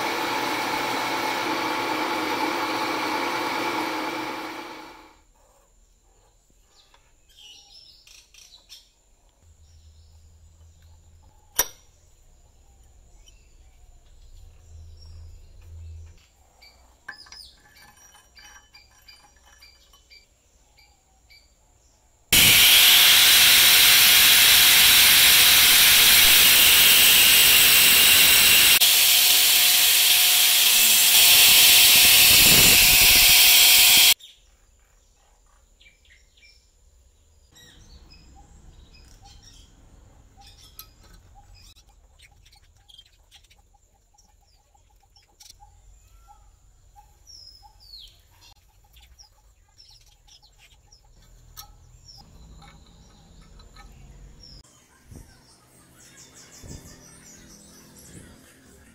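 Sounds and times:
power tool whirring on steel: 0:00.0 - 0:05.2, 0:22.3 - 0:34.2
birds chirping faintly: 0:34.2 - 0:58.9.

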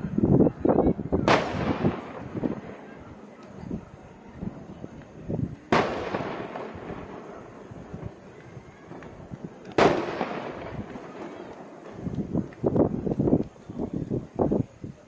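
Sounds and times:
fireworks bursting with echo: 0:00.0 - 0:15.0.

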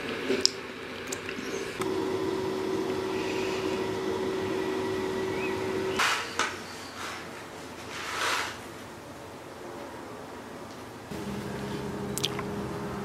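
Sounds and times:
steady hum: 0:01.7 - 0:06.1, 0:11.1 - 0:13.0.

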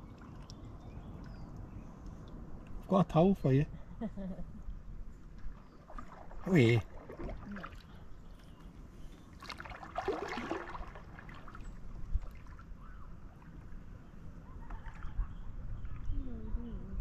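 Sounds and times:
water trickling and splashing: 0:00.0 - 0:02.9, 0:05.2 - 0:16.1
paddle blades dipping in water: 0:05.3 - 0:12.7.

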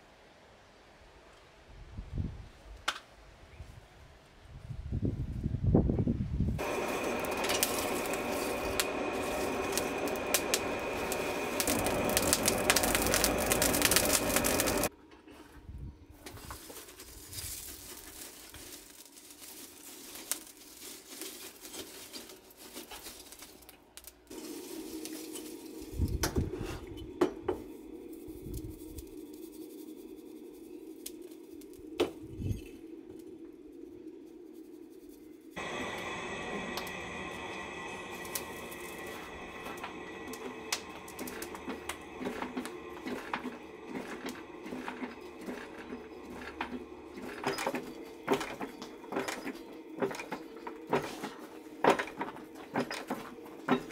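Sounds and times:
fire crackling: 0:06.6 - 0:14.9, 0:16.2 - 0:53.9
low hum: 0:06.6 - 0:14.9, 0:24.3 - 0:53.9.

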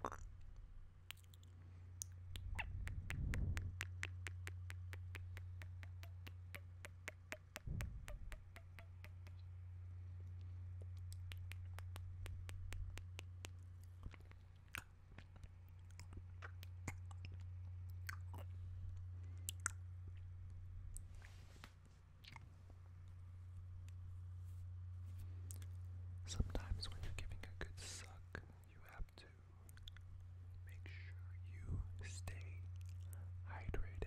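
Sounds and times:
steady low hum: 0:00.0 - 0:34.0
wet lip and tongue clicks: 0:01.0 - 0:09.5, 0:10.3 - 0:18.5, 0:19.3 - 0:20.3, 0:22.2 - 0:22.5, 0:25.5 - 0:25.7, 0:29.1 - 0:30.1, 0:32.3 - 0:33.2.

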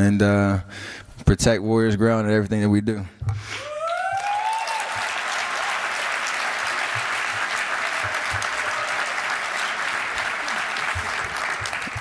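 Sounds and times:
person cheering: 0:03.6 - 0:06.5, 0:07.4 - 0:11.9
audience applauding: 0:03.6 - 0:12.0.

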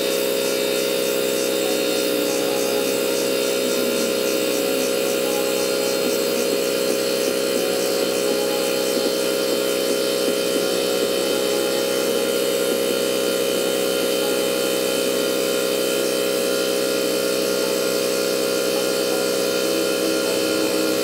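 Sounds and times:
machine humming: 0:00.0 - 0:21.0.

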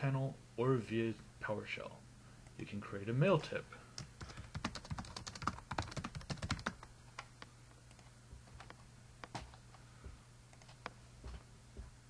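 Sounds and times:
typing on computer keyboard: 0:04.0 - 0:07.3.

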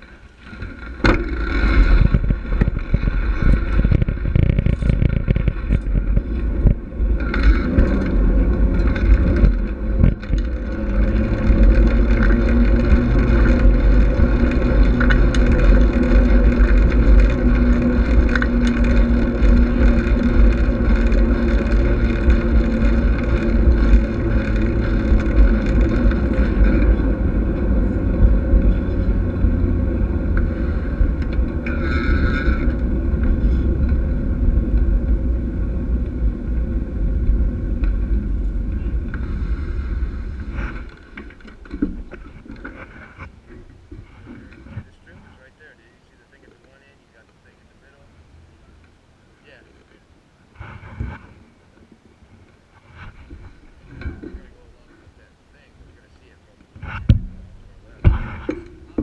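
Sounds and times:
bicycle tyres rumbling on path: 0:00.0 - 0:59.0
wind buffeting microphone: 0:00.9 - 0:46.5.

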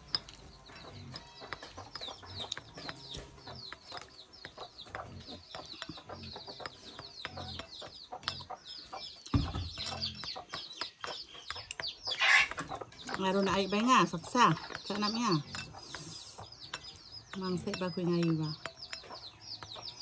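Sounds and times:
beak clicking on bowl: 0:00.0 - 0:20.0.

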